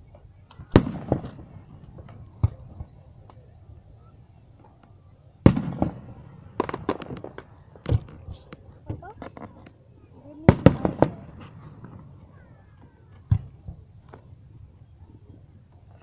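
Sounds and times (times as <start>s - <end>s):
firework pops and crackles: 0.0s - 16.0s
firework booms: 0.5s - 3.3s, 5.4s - 8.3s, 10.4s - 14.3s.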